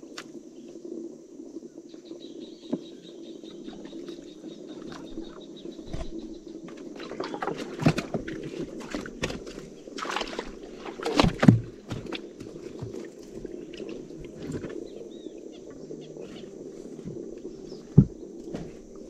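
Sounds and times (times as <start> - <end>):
steady low hum: 0.0 - 19.0
knocks and clatter in boat: 4.7 - 15.1, 16.3 - 19.0.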